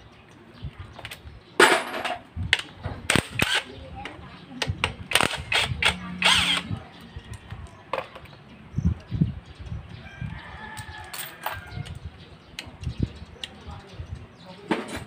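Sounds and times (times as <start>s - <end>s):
electric impact wrench: 5.1s - 6.7s
rooster crowing: 10.0s - 11.9s.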